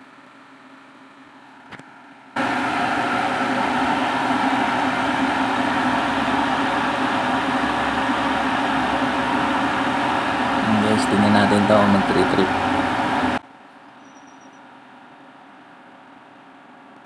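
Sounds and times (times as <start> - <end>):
kettle water boiling hiss: 2.4 - 13.4.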